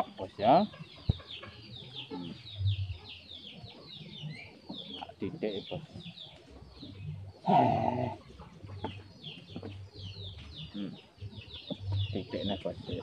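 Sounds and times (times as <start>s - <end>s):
chickens clucking: 0.0s - 13.0s
loud long animal call: 7.4s - 8.2s.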